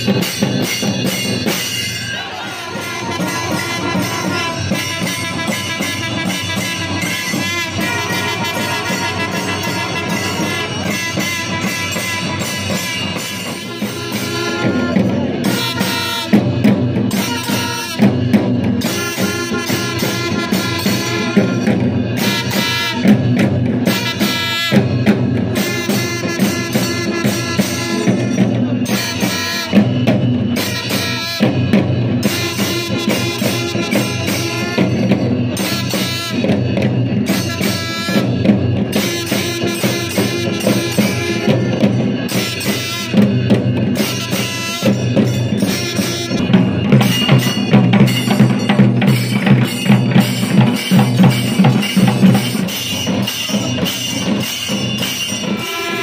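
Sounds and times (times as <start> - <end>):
drums and hand cymbals: 0.0 - 56.0
long brass horns: 2.3 - 16.3, 18.8 - 23.0, 37.2 - 43.2, 44.0 - 48.2, 55.4 - 56.0.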